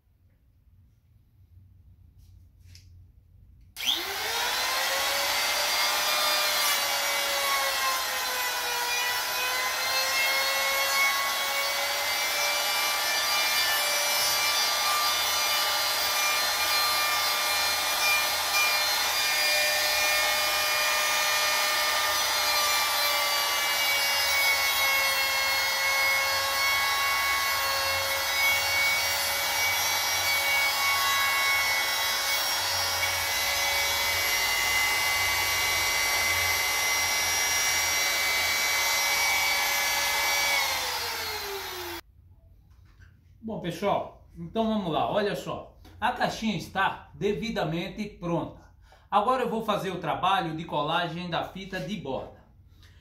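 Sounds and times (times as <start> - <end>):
trim router high whine: 3.8 - 9.8, 30.0 - 42.0.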